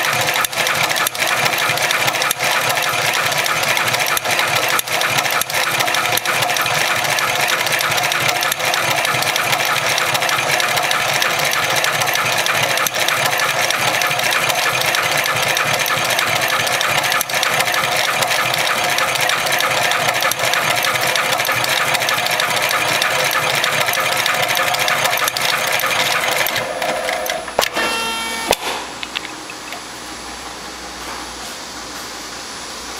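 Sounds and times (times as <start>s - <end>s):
sewing machine needle clatter: 0.0s - 27.4s
steady machine hum: 0.0s - 32.9s
machine clunks: 26.4s - 29.8s.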